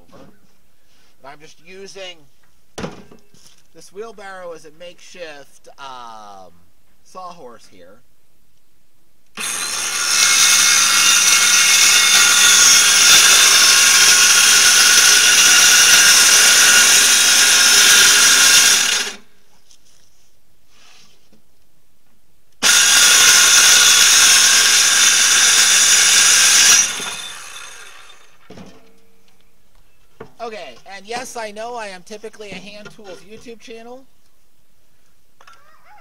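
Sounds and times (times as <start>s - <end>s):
power saw cutting plywood: 9.4s - 19.3s, 22.6s - 28.5s.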